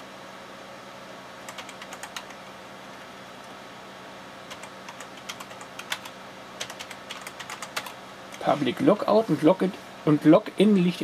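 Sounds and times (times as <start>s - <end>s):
steady low hum: 0.0s - 11.0s
keyboard typing clicks: 1.4s - 2.4s, 4.5s - 8.0s.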